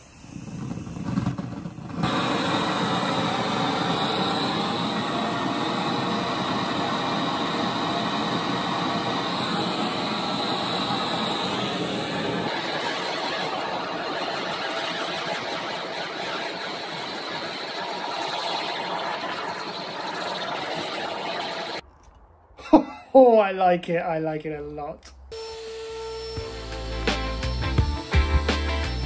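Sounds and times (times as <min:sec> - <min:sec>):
blowtorch hissing: 0:00.0 - 0:21.8.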